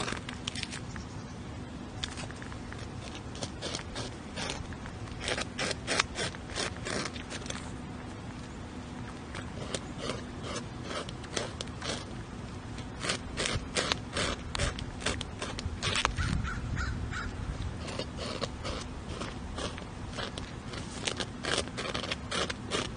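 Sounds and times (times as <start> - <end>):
beaver gnawing wood: 2.0 - 16.5, 17.2 - 22.9.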